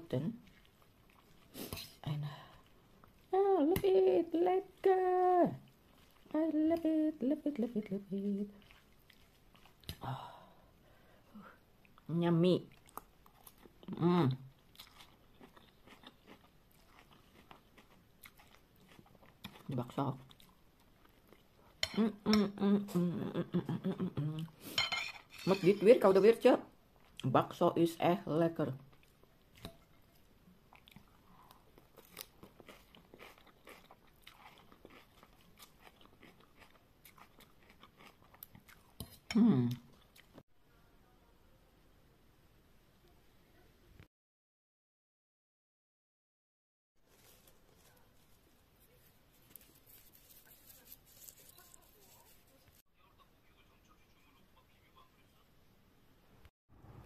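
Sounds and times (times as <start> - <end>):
person chewing noodles: 0.4 - 1.7, 5.6 - 6.3, 8.5 - 10.0, 14.5 - 21.8, 28.9 - 39.0
person humming: 6.3 - 8.6, 21.8 - 24.6, 39.3 - 39.9.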